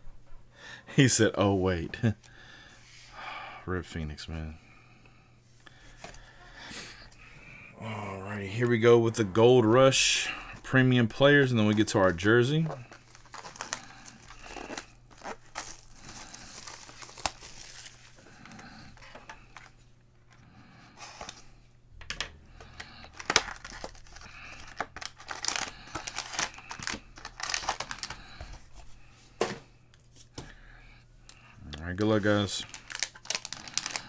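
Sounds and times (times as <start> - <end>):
foil pack crinkling: 11.7 - 19.7, 22.6 - 28.8, 32.0 - 34.0.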